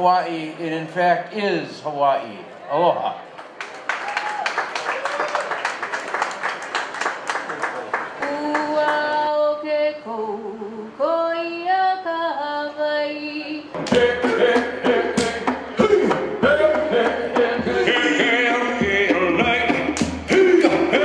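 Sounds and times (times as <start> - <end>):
group chanting and shouting: 13.7 - 21.0
sharp percussive hits: 13.8 - 21.0.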